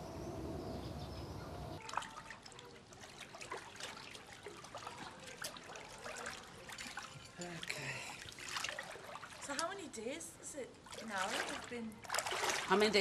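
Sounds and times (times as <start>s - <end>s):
small water splashes: 1.8s - 10.0s, 10.7s - 13.0s
water bubbling and lapping: 1.8s - 10.0s, 10.8s - 13.0s.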